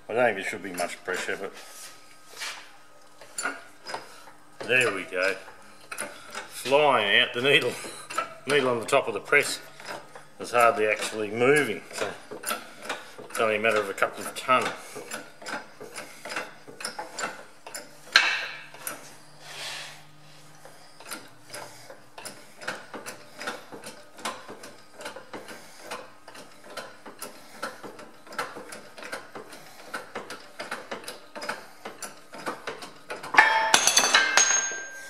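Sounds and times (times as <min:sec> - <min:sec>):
metal clank: 0:33.3 - 0:35.0.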